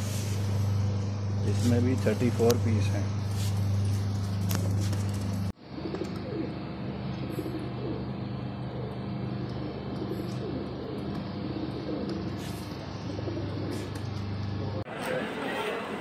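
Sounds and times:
steady low hum: 0:00.0 - 0:16.0
pigeons cooing: 0:04.6 - 0:14.8.

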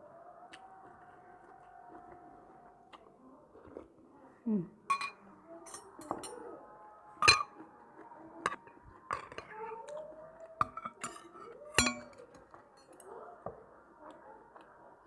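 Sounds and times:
cutlery clinking on plates: 0:04.9 - 0:06.5, 0:07.2 - 0:07.6, 0:10.6 - 0:13.2.

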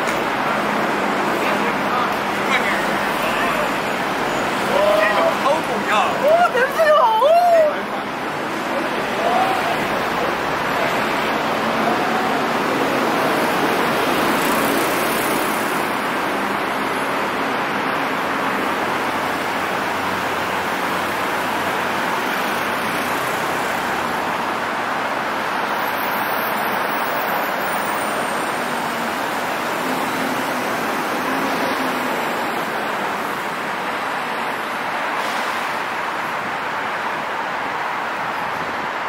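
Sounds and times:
city traffic on wet streets: 0:00.0 - 0:39.0.

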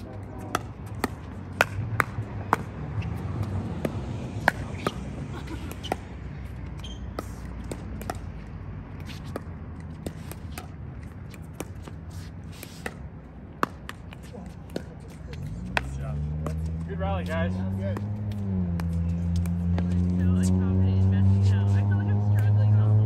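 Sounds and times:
paddles hitting plastic ball: 0:00.4 - 0:02.8, 0:07.2 - 0:16.6.

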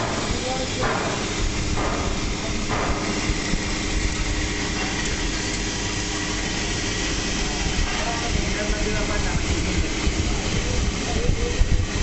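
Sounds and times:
industrial machinery humming: 0:00.0 - 0:12.0.

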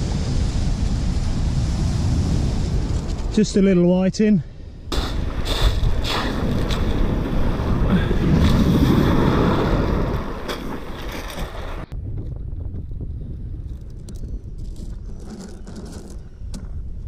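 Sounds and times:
wind buffeting microphone: 0:04.8 - 0:17.0
surf washing over shingle: 0:04.9 - 0:11.8.

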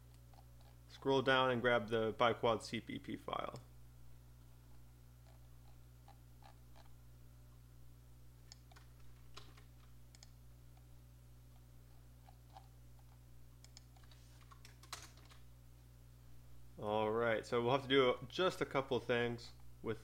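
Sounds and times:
low steady hum: 0:00.0 - 0:20.0
mouse and keyboard clicks: 0:12.2 - 0:15.4.

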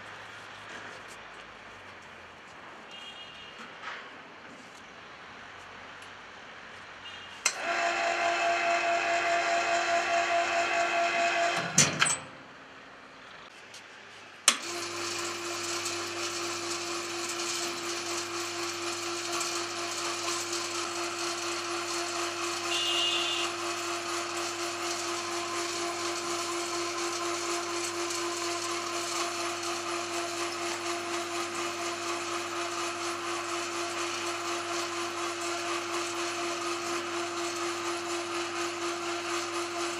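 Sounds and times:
winch motor humming: 0:07.4 - 0:11.8, 0:14.5 - 0:39.9.

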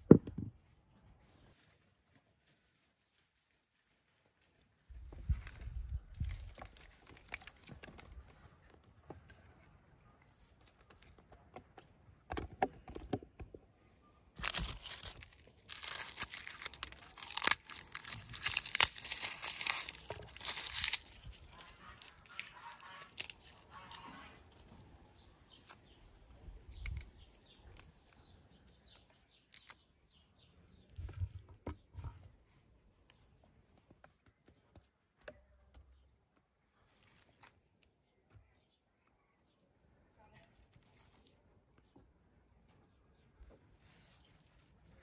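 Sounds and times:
garlic skins crackling: 0:06.2 - 0:08.2, 0:14.4 - 0:29.8.

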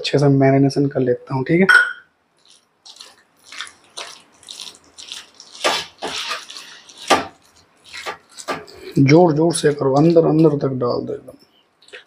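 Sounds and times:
hand squelching chicken in marinade: 0:02.4 - 0:08.9.

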